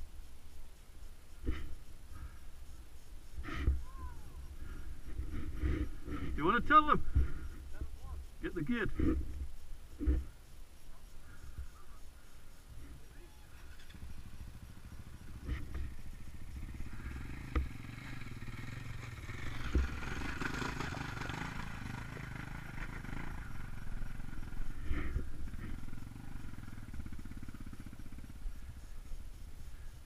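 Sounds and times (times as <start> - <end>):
motorcycle engine at low revs: 1.3 - 2.4, 3.2 - 10.4, 12.7 - 30.0.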